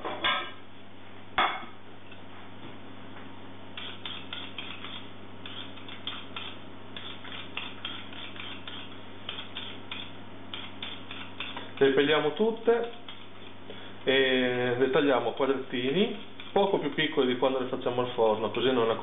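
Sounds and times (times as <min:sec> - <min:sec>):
low steady hum: 0:00.0 - 0:19.0
knife scraping potato: 0:03.8 - 0:13.6, 0:15.7 - 0:17.1.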